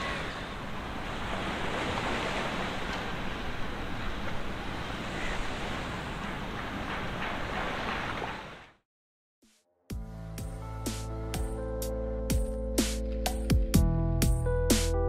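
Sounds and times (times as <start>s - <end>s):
rushing water: 0.0s - 8.8s.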